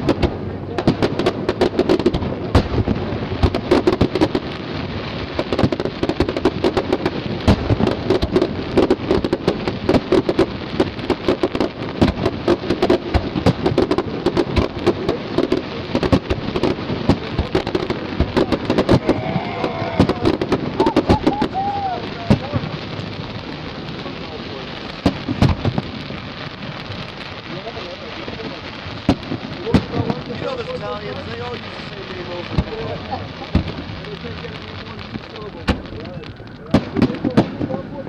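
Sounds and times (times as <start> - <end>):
firework shells bursting: 0.0 - 38.0
fireworks crackling: 0.0 - 38.0.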